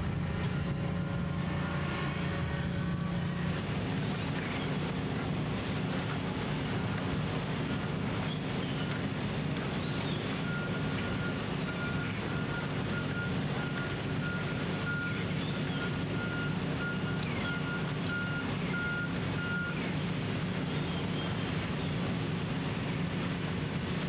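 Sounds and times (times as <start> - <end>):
engine running: 0.0 - 24.0
reversing alarm beeping: 10.4 - 19.8.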